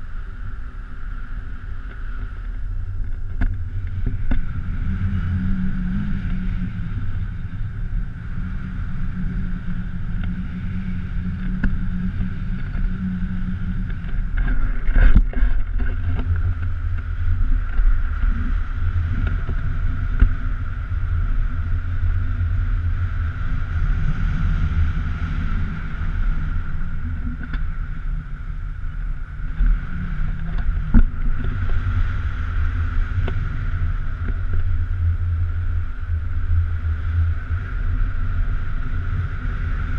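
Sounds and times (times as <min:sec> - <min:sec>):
wind rumble on camera: 0:00.0 - 0:39.9.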